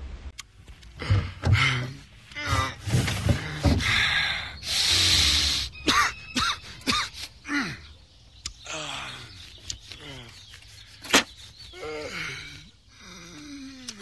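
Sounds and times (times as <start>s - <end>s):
person gasping and breathing: 11.7s - 14.0s.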